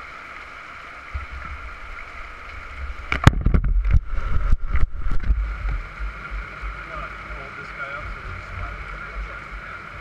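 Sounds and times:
wind buffeting microphone: 0:02.7 - 0:07.0
heavy rain hissing: 0:04.1 - 0:10.0.

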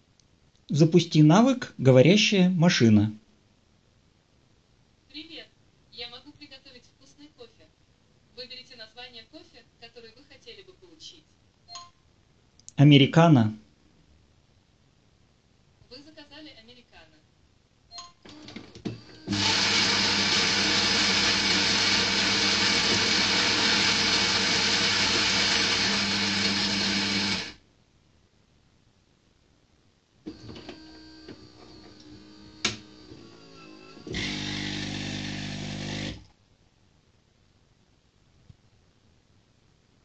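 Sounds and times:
coffee grinder running: 0:18.4 - 0:27.6, 0:30.3 - 0:36.2
water pump humming: 0:18.9 - 0:27.6, 0:30.3 - 0:36.2.

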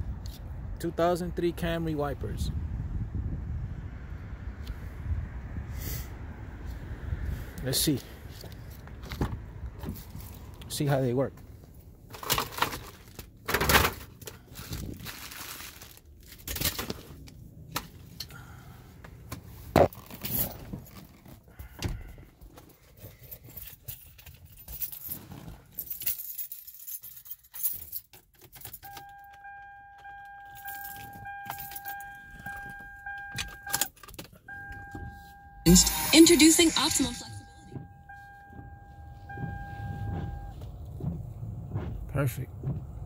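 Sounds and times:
keys jangling: 0:23.0 - 0:29.0, 0:30.5 - 0:32.8.

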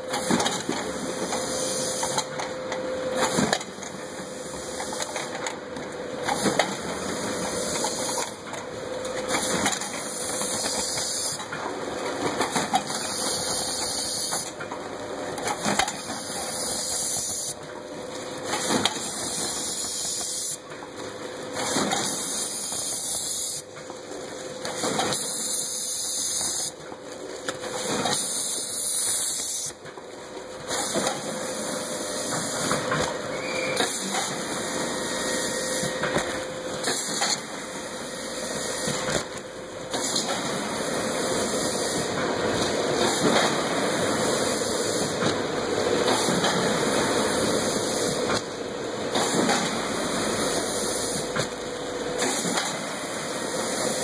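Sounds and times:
machine hiss: 0:43.0 - 0:45.2, 0:49.1 - 0:51.4.

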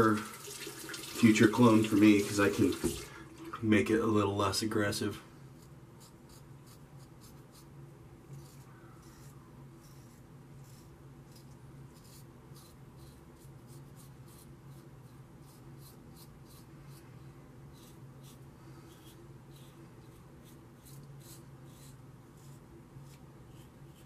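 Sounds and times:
steady low hum: 0:03.1 - 0:24.0
razor scraping stubble: 0:05.6 - 0:07.7, 0:08.3 - 0:17.0, 0:17.7 - 0:24.0.

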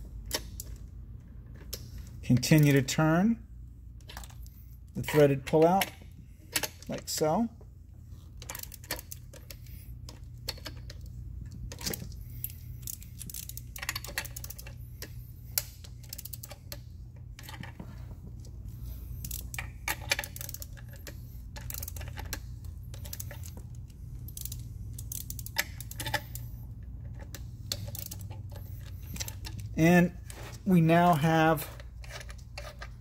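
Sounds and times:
low steady hum: 0:00.0 - 0:33.0
ratcheting torque wrench clicking: 0:11.8 - 0:14.8, 0:15.5 - 0:16.8, 0:19.2 - 0:26.5, 0:27.2 - 0:29.7.

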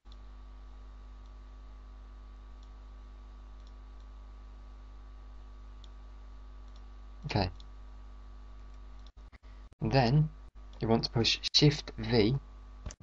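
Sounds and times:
low electrical hum and hiss: 0:00.1 - 0:13.0
computer mouse clicks: 0:03.6 - 0:04.1, 0:06.6 - 0:06.9, 0:08.6 - 0:09.2.

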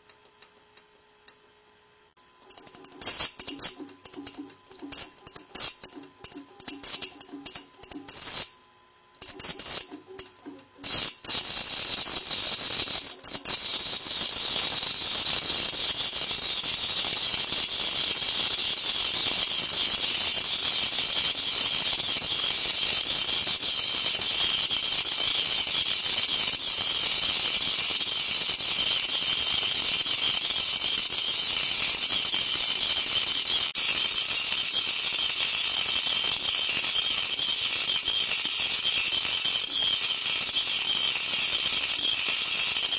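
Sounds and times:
electrode sparking crackling hiss: 0:02.7 - 0:06.1, 0:06.7 - 0:08.6, 0:09.2 - 0:10.0, 0:10.8 - 0:42.9.

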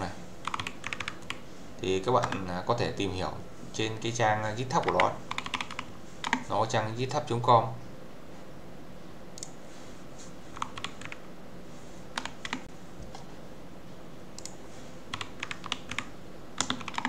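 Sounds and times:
computer keyboard typing: 0:00.4 - 0:01.4, 0:02.2 - 0:02.4, 0:04.8 - 0:06.5, 0:10.5 - 0:11.2, 0:12.2 - 0:12.7, 0:14.4 - 0:17.0.

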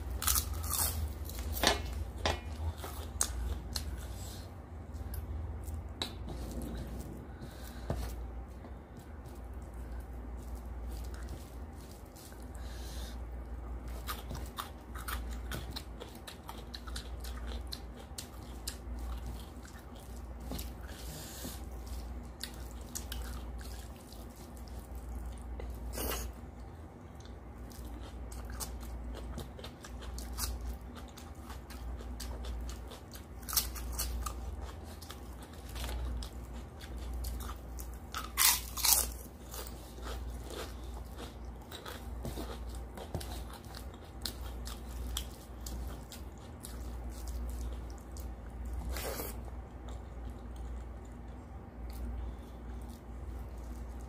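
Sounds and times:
chewing food: 0:00.0 - 0:54.0.

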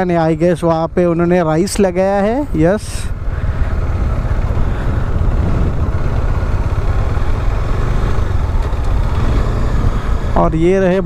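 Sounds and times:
motorcycle engine rumble: 0:00.0 - 0:11.0
wind on microphone: 0:04.4 - 0:06.5.

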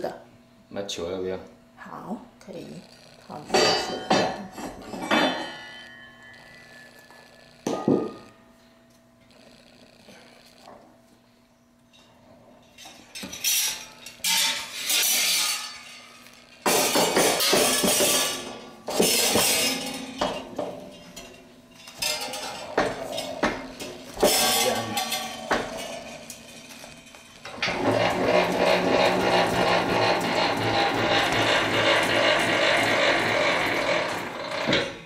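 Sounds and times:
metal bowl and whip clanking: 0:16.7 - 0:29.9.

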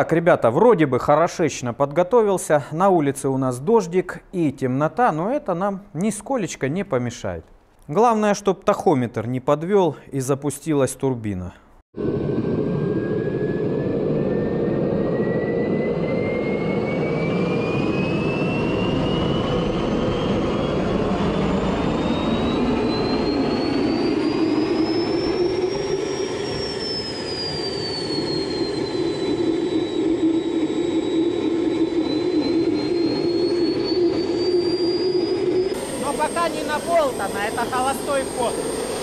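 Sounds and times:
small turbojet engine roaring: 0:12.0 - 0:39.0
whistling whine: 0:12.0 - 0:39.0.

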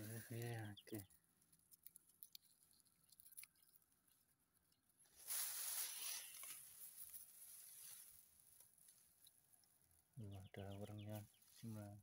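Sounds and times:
leaves rustling against phone: 0:05.0 - 0:10.1.

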